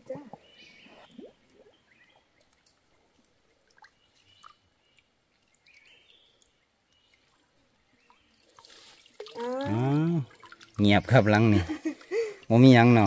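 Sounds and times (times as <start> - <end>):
faint water splashing: 0.0 - 13.0.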